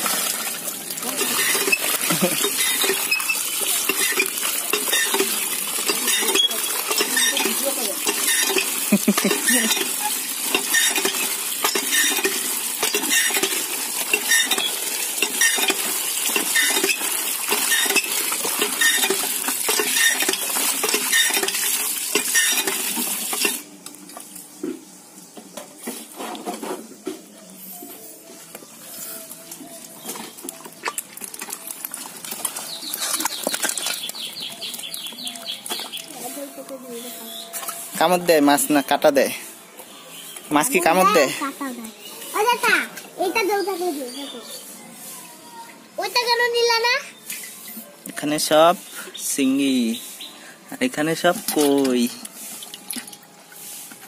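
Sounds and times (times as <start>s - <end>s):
water pouring and splashing: 0.0s - 54.0s
wet fish flapping in a crate: 29.4s - 36.2s.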